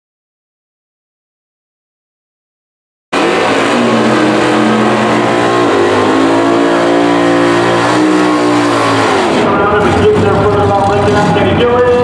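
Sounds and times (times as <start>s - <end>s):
car engine revving: 3.2s - 11.9s.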